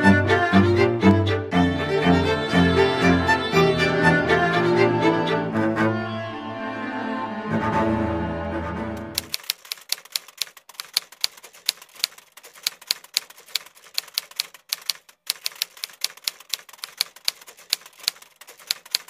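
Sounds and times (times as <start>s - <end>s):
string music: 0.0s - 9.2s
typewriter keys clicking: 9.2s - 19.0s.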